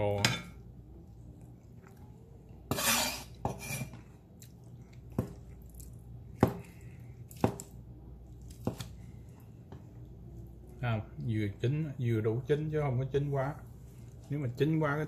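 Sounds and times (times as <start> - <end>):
cleaver scraping: 2.7 - 4.0.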